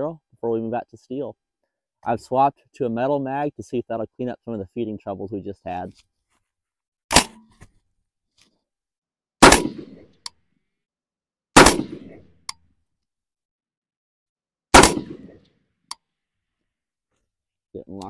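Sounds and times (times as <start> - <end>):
rifle shots with echo: 9.4 - 10.0, 11.6 - 12.3, 14.7 - 15.4.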